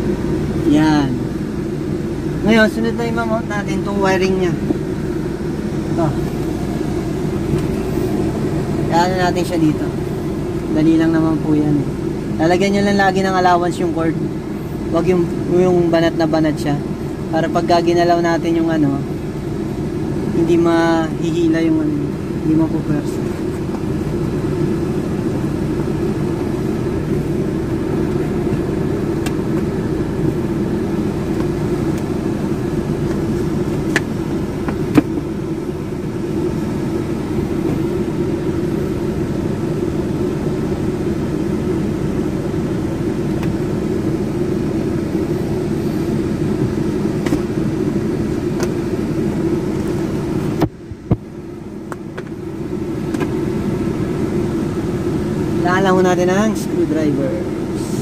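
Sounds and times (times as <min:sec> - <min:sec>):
car idling hum: 0:00.0 - 0:58.0.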